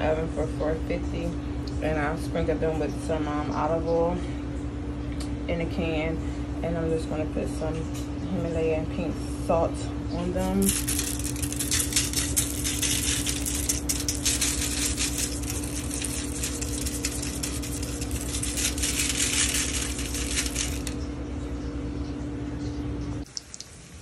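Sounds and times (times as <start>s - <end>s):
steady low hum: 0.0s - 24.0s
salt grains rattling onto foil: 10.5s - 21.0s.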